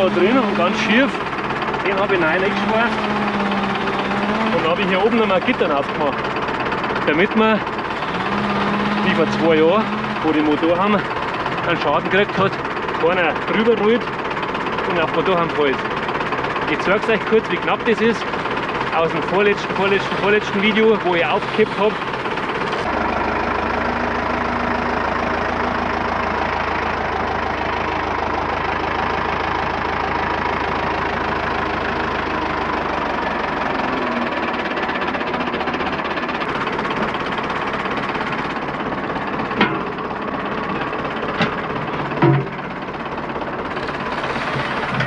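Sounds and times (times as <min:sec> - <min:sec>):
tractor diesel engine running: 0:00.0 - 0:45.0
sharp knocks: 0:42.2 - 0:42.6.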